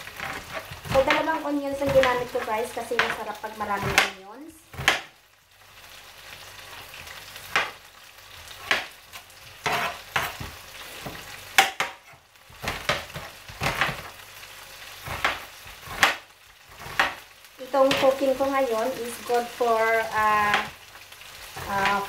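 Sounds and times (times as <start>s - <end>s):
meat sizzling in a frying pan: 0.0s - 22.0s
knife chopping on cutting board: 3.8s - 5.1s, 8.6s - 9.0s, 9.6s - 14.1s, 15.0s - 16.2s.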